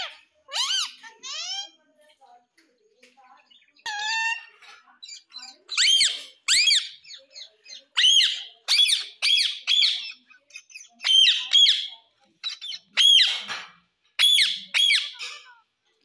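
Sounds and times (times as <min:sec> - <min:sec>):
parakeet shrill squawks: 0:00.0 - 0:01.8, 0:03.8 - 0:04.6, 0:05.2 - 0:13.6, 0:14.2 - 0:15.5.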